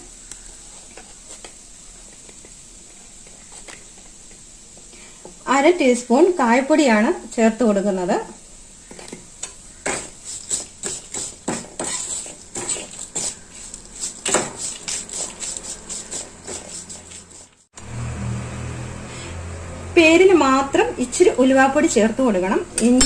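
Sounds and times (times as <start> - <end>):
metal spoon scraping a pan: 8.9 - 17.6
low hum: 17.8 - 21.0.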